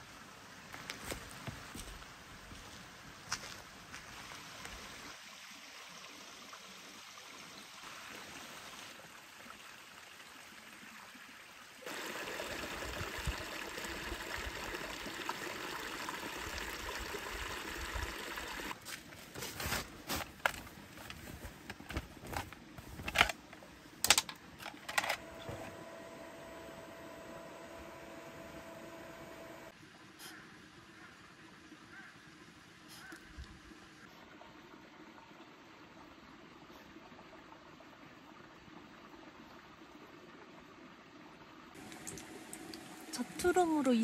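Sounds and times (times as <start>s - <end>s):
stream trickling over stones: 0.0s - 24.7s, 29.7s - 44.0s
camping gear clicks and knocks: 18.8s - 25.6s.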